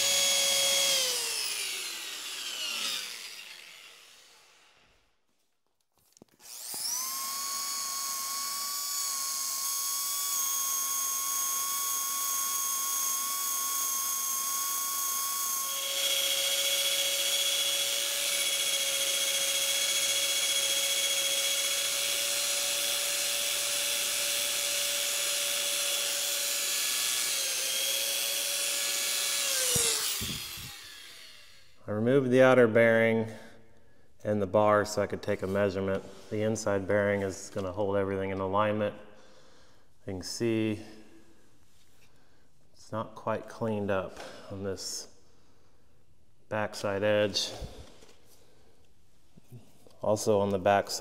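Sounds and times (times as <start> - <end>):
electric drill whining: 0.0 - 5.0, 6.3 - 31.8.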